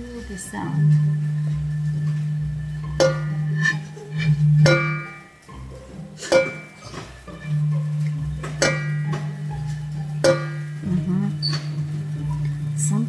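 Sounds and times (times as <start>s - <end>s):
metal bowl struck ringing: 0.0s - 13.0s.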